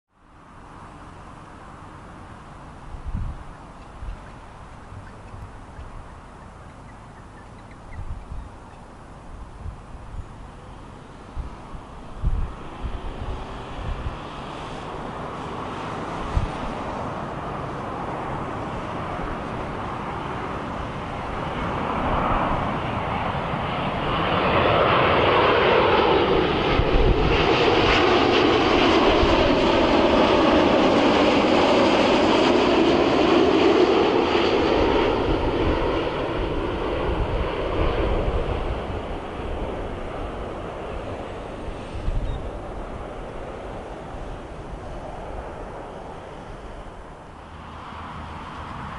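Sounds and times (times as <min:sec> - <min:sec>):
jet engines passing overhead: 0:00.1 - 0:48.9.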